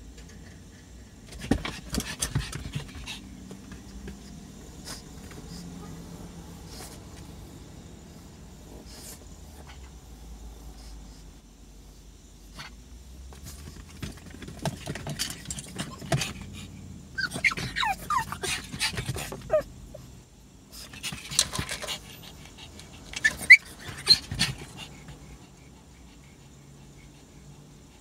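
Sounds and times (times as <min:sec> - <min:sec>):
dog panting: 0:00.8 - 0:10.0, 0:14.4 - 0:20.1, 0:20.8 - 0:28.0
dog whimpering: 0:17.2 - 0:20.0, 0:23.0 - 0:25.2.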